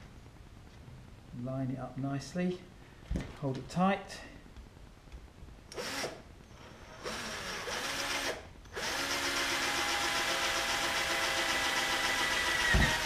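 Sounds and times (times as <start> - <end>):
cordless drill drilling metal: 5.7 - 13.0.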